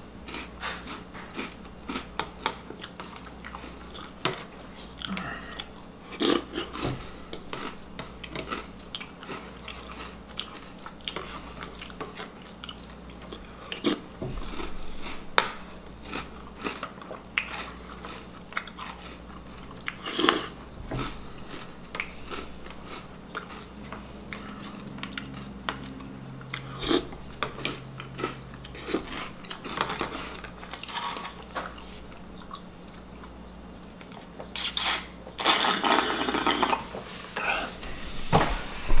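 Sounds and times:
chewing and crunching cereal: 0.1 - 37.7
slurping milk: 26.6 - 27.1, 34.6 - 36.9.

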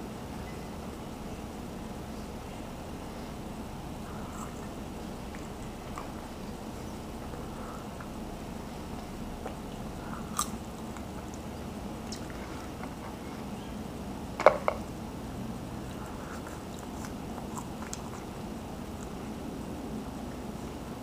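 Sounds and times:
low background hum: 0.0 - 21.0
person chewing: 4.0 - 6.4, 8.8 - 13.0, 15.6 - 19.3.

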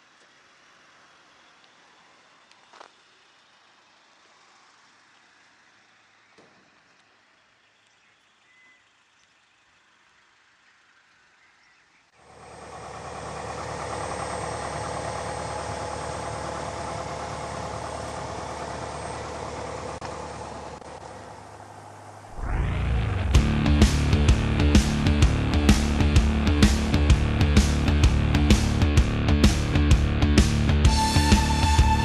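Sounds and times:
light aircraft piston engine: 12.2 - 32.0.

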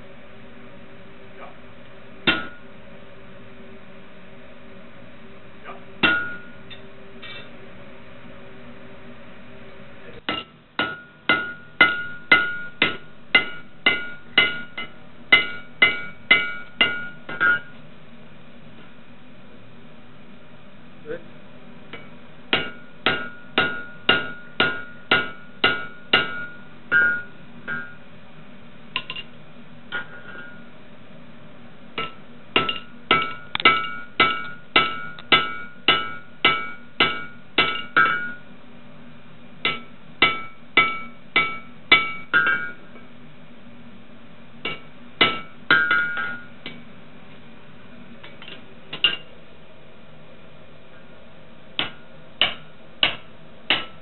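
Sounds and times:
hammer striking metal punch: 2.2 - 2.6, 6.0 - 6.6, 10.3 - 17.7, 21.9 - 28.0, 29.0 - 29.3, 29.9 - 30.6, 32.0 - 38.4, 39.6 - 42.8, 44.6 - 46.8, 48.3 - 49.3, 51.8 - 54.0.

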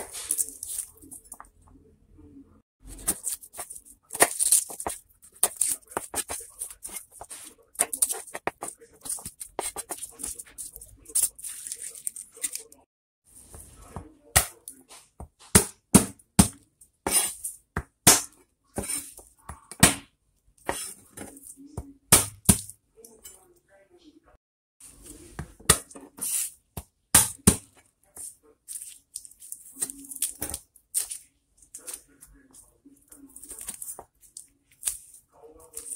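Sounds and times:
papery garlic skins crackling: 2.8 - 12.9, 28.6 - 35.9.

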